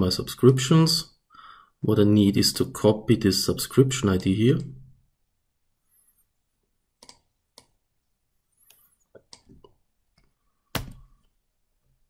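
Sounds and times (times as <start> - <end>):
mouse and keyboard clicks: 7.0 - 7.7.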